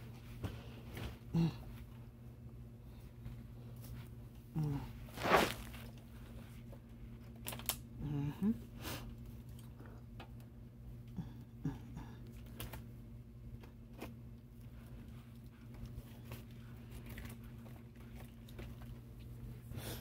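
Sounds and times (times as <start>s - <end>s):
low steady hum: 0.0s - 20.0s
soft rustles against hair: 5.1s - 6.0s.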